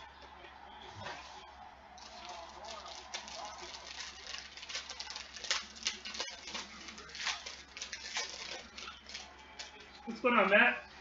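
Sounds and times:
foil wrapper crinkling and tearing: 2.0s - 9.9s.

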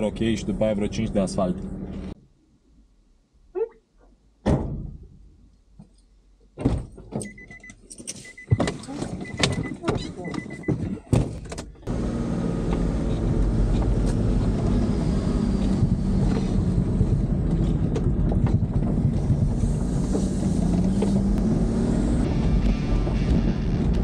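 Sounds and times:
vehicle engine drone: 0.0s - 2.2s, 11.9s - 24.0s.

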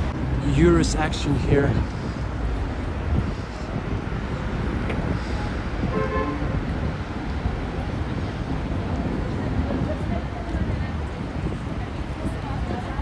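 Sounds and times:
street traffic rumbling: 0.0s - 13.0s
wind buffeting microphone: 0.0s - 13.0s.

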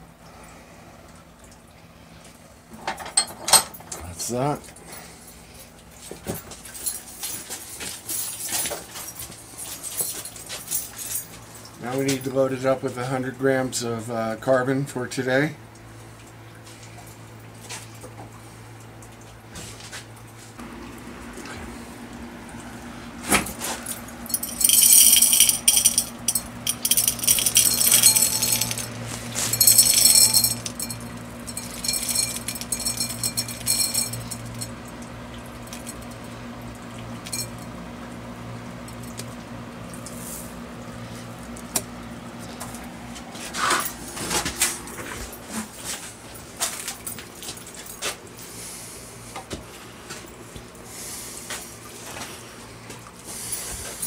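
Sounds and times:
steady low hum: 0.0s - 54.0s
carbon granules pouring and rattling: 24.4s - 34.3s.

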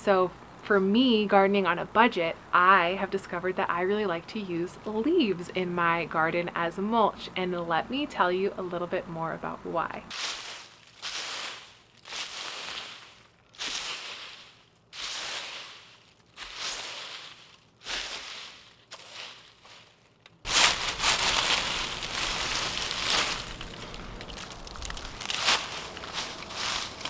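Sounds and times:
broom sweeping dry leaves: 10.1s - 27.0s
dry leaves crunching rustle: 10.1s - 27.0s.

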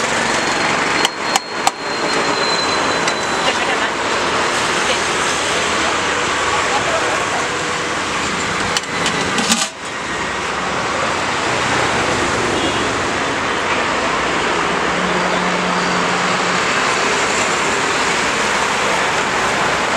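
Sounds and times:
road traffic: 0.0s - 19.9s
pot lid clinking: 9.1s - 9.8s.

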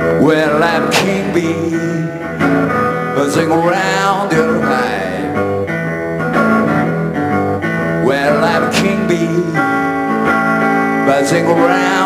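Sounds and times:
man singing: 0.0s - 5.8s, 7.8s - 12.0s
acoustic guitar blues groove: 0.0s - 12.0s.

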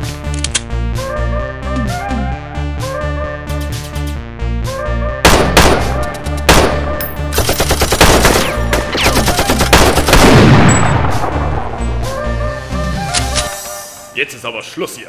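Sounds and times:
action music: 0.0s - 15.0s
pistol gunfire: 5.3s - 11.0s.

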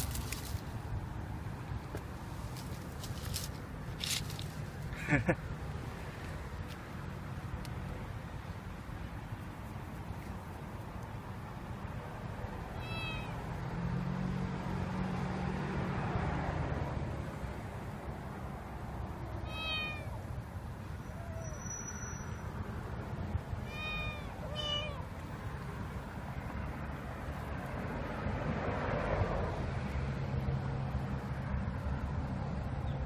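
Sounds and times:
kitten mewing: 12.8s - 13.4s, 19.5s - 20.2s, 23.6s - 25.1s.

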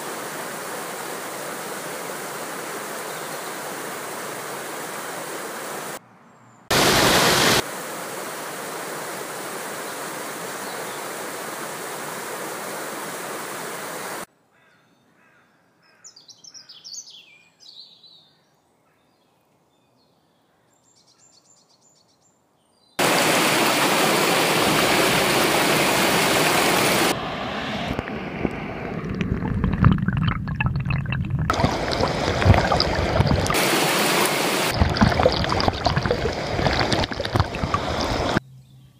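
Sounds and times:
water rushing: 0.0s - 6.0s, 6.7s - 14.3s, 23.0s - 38.4s
low rumbles: 27.0s - 33.6s, 34.6s - 38.4s.

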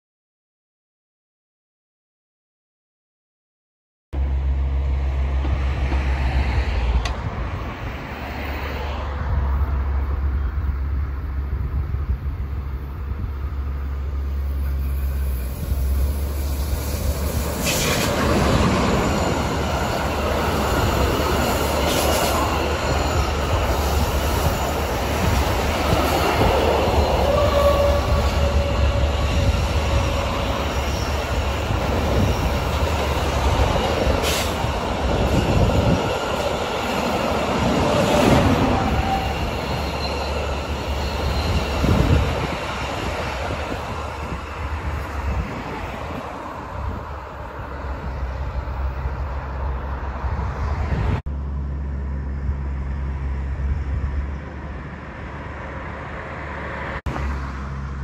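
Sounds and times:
freight train passing: 4.2s - 58.0s
wheel squeal: 14.5s - 37.2s, 37.8s - 43.0s.

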